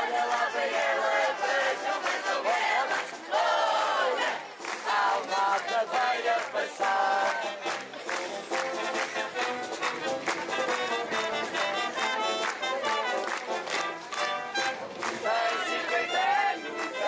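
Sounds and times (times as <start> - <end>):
band playing a lively march: 0.1 - 17.0.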